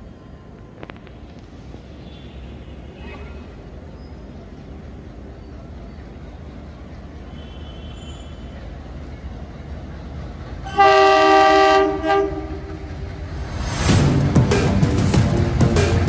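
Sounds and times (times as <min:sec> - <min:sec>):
locomotive air horn blast: 0:10.6 - 0:13.0.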